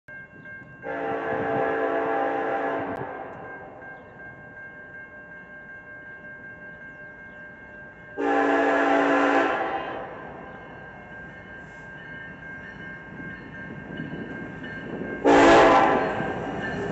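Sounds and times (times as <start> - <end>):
freight train rumbling past: 0.7 - 16.9
locomotive air horn: 0.8 - 3.6, 8.2 - 10.3, 15.2 - 16.5.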